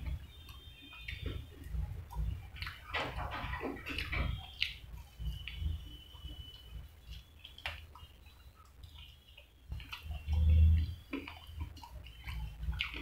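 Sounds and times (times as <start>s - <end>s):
man chewing and lip-smacking: 0.0s - 13.0s.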